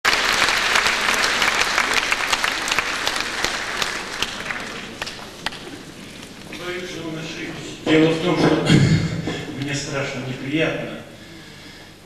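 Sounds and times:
audience applause: 0.0 - 6.4.

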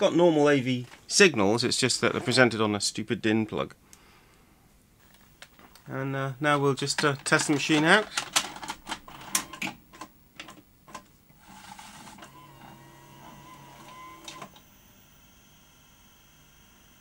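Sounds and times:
tape mechanism motor whirring: 11.4 - 17.0.

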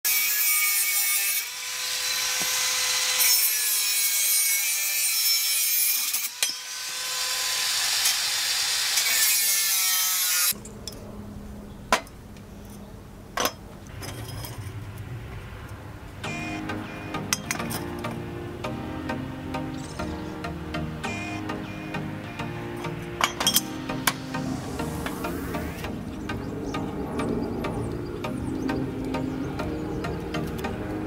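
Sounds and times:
angle grinder cutting metal: 0.1 - 10.6, 16.2 - 26.2
low hum: 13.8 - 31.0.

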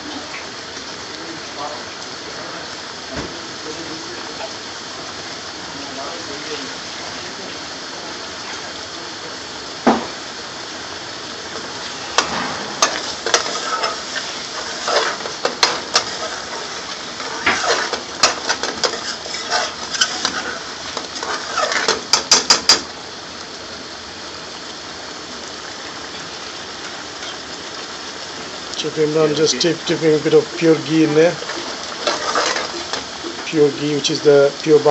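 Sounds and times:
sauce sizzling in a pan: 0.0 - 34.9
utensil stirring and knocking on pan: 12.1 - 22.9, 31.4 - 33.5.

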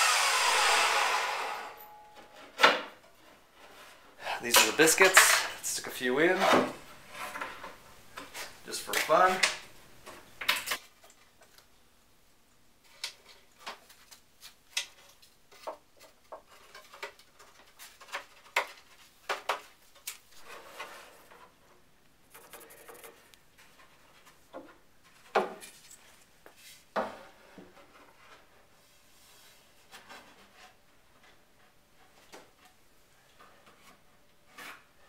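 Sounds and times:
wood scraping: 3.1 - 10.3.

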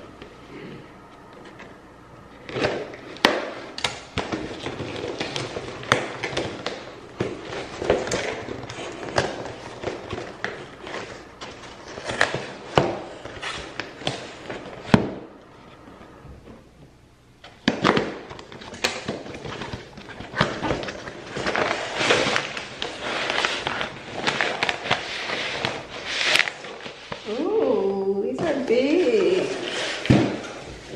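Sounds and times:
packaging rustling and crinkling: 2.4 - 16.1, 17.7 - 30.9.

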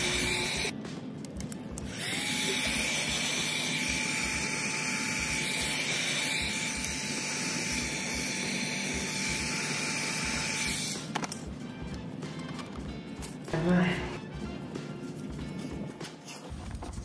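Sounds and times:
heat gun motor whine: 0.0 - 0.7, 1.9 - 11.3.

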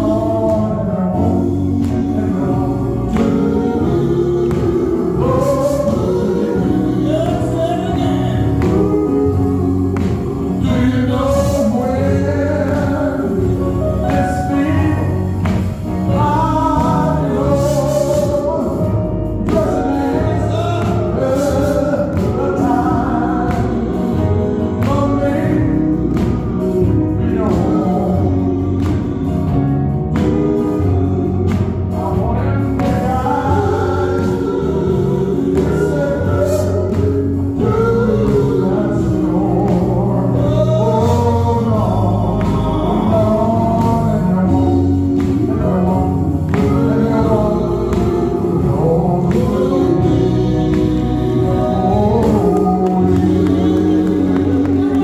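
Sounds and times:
bass line: 0.0 - 55.0
electric guitar: 0.0 - 55.0
male lead singer: 0.0 - 55.0
vocal harmonies: 0.0 - 55.0.

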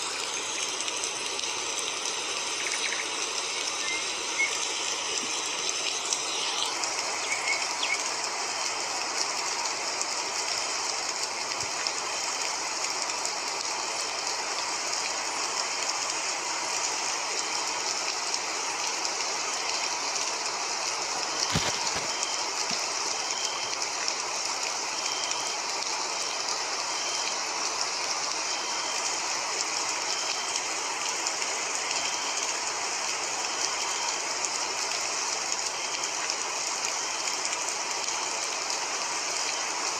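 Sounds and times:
steady hissing noise: 0.0 - 39.9
faint short high beeps: 21.4 - 23.7.

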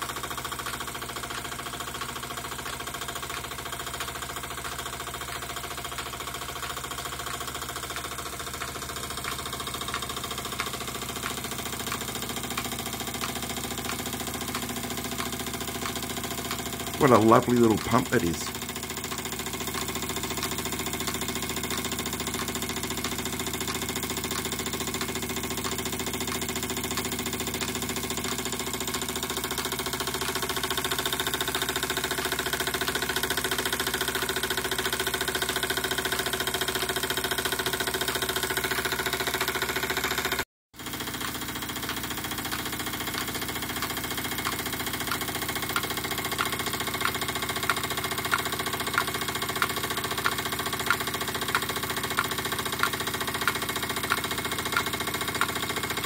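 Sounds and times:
model steam engine running: 0.0 - 56.0
light ticks: 41.2 - 55.6.

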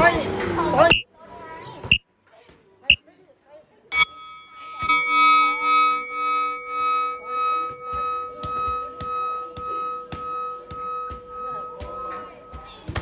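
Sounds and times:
music with held tones: 4.7 - 13.0.

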